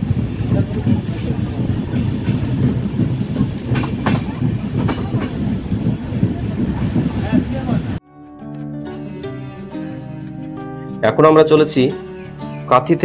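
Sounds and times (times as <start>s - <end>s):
train wheels rumbling on rails: 0.0s - 8.0s
wheels clacking over rail joints: 0.0s - 8.0s.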